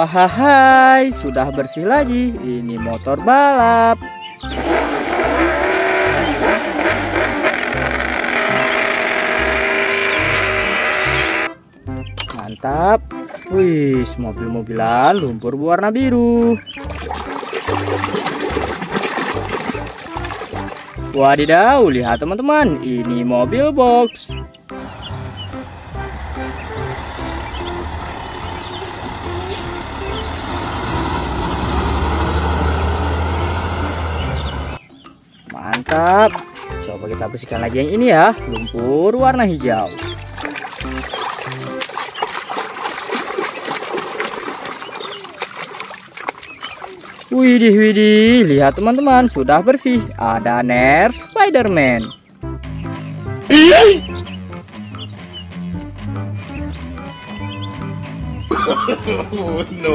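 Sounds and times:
motorcycle engine revving: 0:04.4 - 0:11.6, 0:24.7 - 0:34.8
background music with steady beat: 0:09.4 - 0:15.4, 0:48.3 - 0:59.9.

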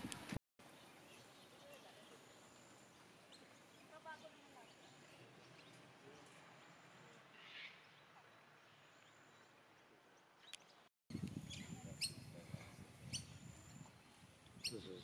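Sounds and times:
birds chirping: 0:00.6 - 0:15.0.

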